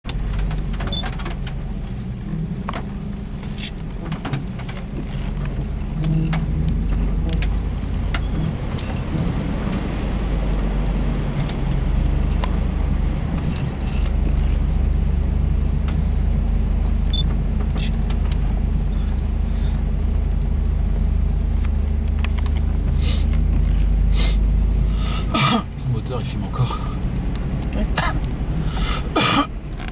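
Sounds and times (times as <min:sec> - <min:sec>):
off-road vehicle engine droning: 0:00.0 - 0:29.9
loose parts rattling: 0:13.2 - 0:15.1.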